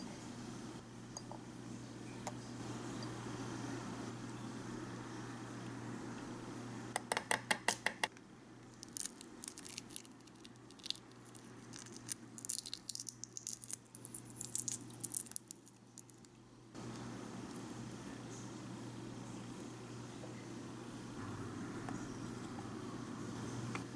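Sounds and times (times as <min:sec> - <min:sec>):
shell crackling as peeled: 0:08.7 - 0:16.4
egg shell cracking on bowl: 0:08.8 - 0:16.3.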